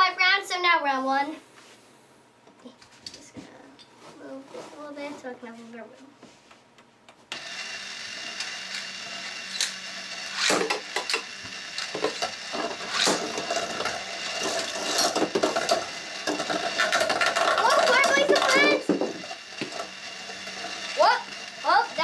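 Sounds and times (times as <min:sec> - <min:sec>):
motorised stadium whirring: 0:07.4 - 0:22.0
spinning tops ripped from launchers: 0:08.2 - 0:22.0
spinning tops clacking on plastic: 0:08.3 - 0:22.0.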